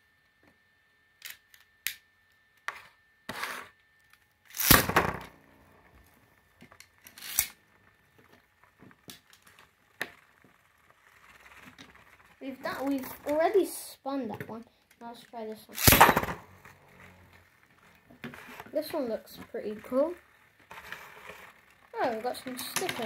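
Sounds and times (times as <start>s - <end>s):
small plastic clicks: 1.2s - 2.7s, 6.6s - 7.6s
ripcord ripping: 4.5s - 5.2s, 7.0s - 7.6s, 15.8s - 17.3s.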